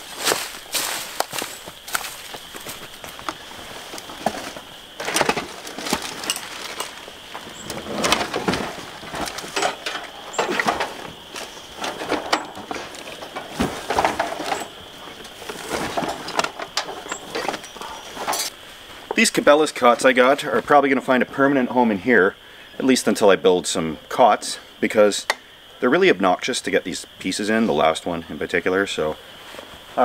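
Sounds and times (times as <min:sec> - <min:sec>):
footsteps in dry leaves: 0:00.0 - 0:07.7
camping gear rustling and clattering: 0:00.0 - 0:21.7, 0:29.3 - 0:30.0.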